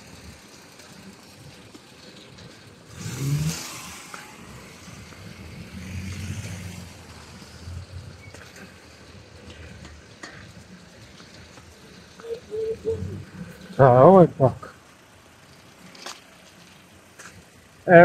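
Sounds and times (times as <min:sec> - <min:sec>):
low engine hum: 0:00.0 - 0:18.0
car driving past: 0:02.0 - 0:17.5.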